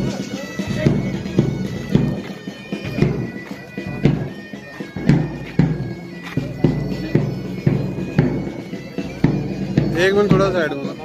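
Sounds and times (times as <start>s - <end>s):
bagpipe tune: 0.0s - 11.0s
regular drum beats: 0.0s - 11.0s.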